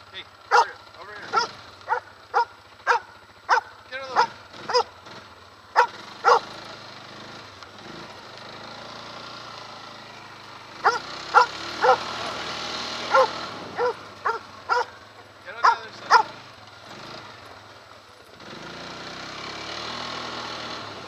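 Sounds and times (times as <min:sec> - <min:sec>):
quad engine running: 0:00.0 - 0:21.0
dog barking: 0:00.5 - 0:04.9, 0:05.8 - 0:06.5, 0:10.8 - 0:12.2, 0:13.1 - 0:15.0, 0:15.6 - 0:16.4.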